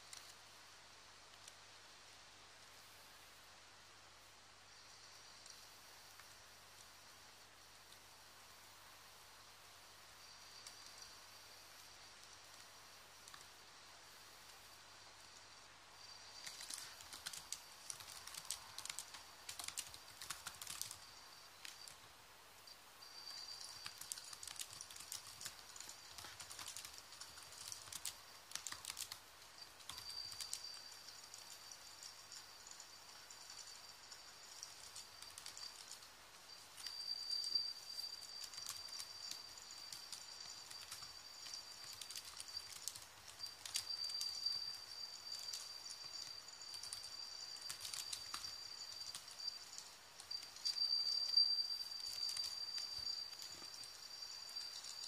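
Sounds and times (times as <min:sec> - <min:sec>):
faint irregular clicks and taps: 0:00.0 - 0:00.5, 0:01.2 - 0:01.7, 0:10.2 - 0:13.8, 0:14.4 - 0:22.1, 0:23.0 - 0:55.0
faint high-pitched whine: 0:00.0 - 0:55.0
high-pitched insect trill: 0:09.4 - 0:13.4, 0:14.1 - 0:55.0.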